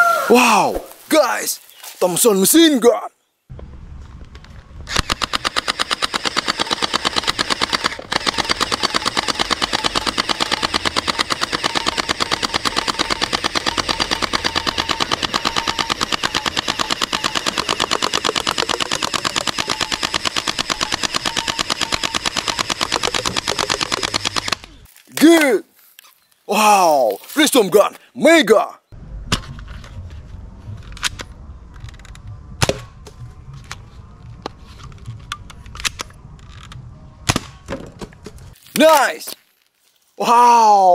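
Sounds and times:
toy machine gun rattling: 5.0s - 24.6s.

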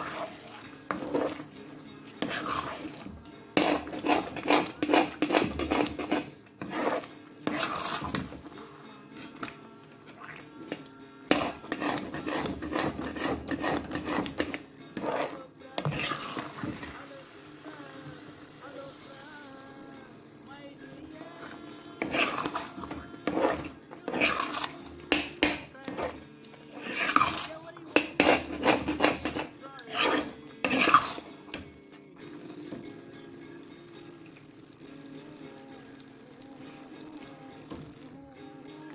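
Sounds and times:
metal spatula scraping pan: 0.0s - 17.0s, 21.4s - 31.7s.

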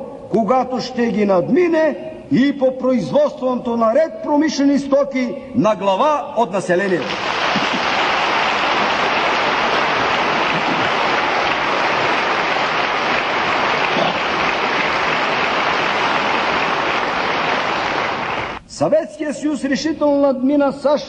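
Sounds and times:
audience applauding: 6.9s - 18.6s.

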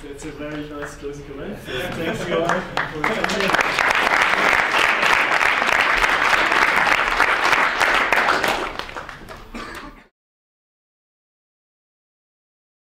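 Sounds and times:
audience applauding: 1.9s - 10.0s.

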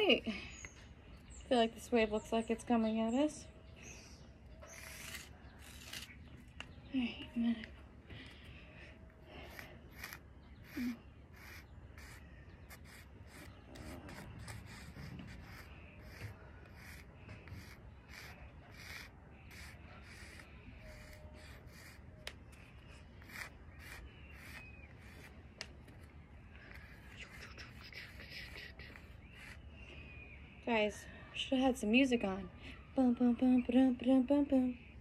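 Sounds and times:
chalk scraping on pavement: 4.6s - 6.3s, 9.3s - 29.7s.

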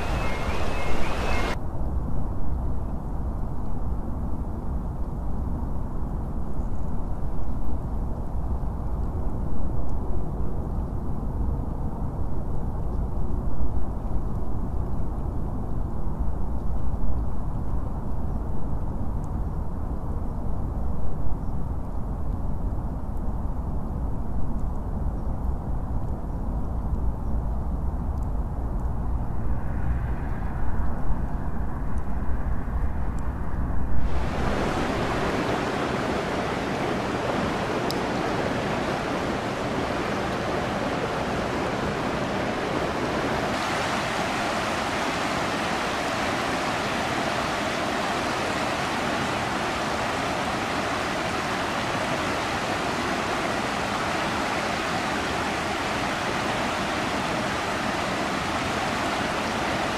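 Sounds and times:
rushing floodwater: 0.0s - 1.6s, 34.0s - 59.9s
low rumble: 28.4s - 35.4s.

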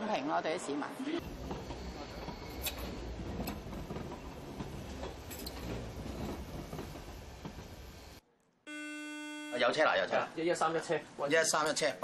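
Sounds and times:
train wheels rumbling on track: 1.2s - 8.2s
steady electronic beep: 8.7s - 9.6s.

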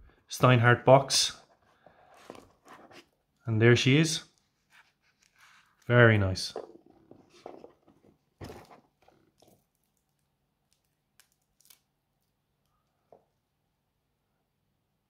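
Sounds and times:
soft rustles of handling: 1.3s - 3.5s, 4.3s - 13.3s.

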